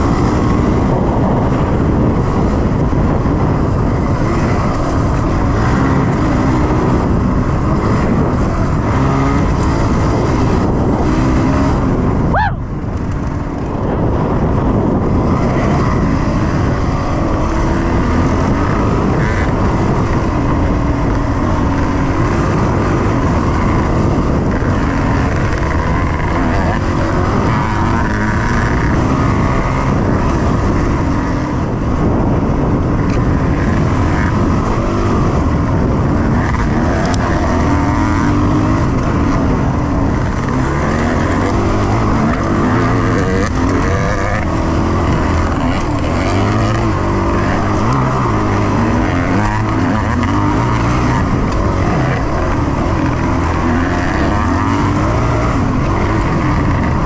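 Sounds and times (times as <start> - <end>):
dirt bike engine running: 0.0 - 57.0.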